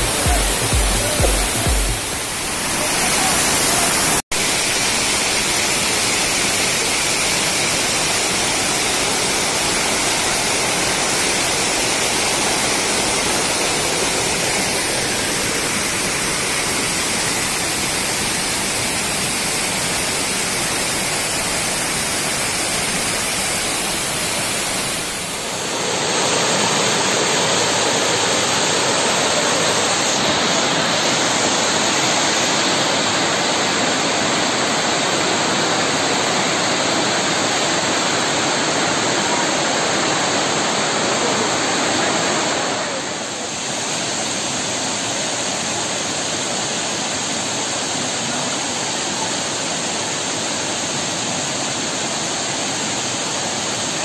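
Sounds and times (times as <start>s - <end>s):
waterfall rushing over boulders: 0.0s - 54.0s.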